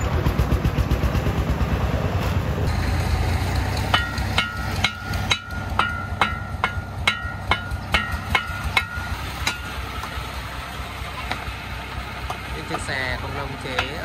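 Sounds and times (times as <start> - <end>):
shovel clanging on metal truck bed: 3.9 - 10.2, 13.7 - 14.0.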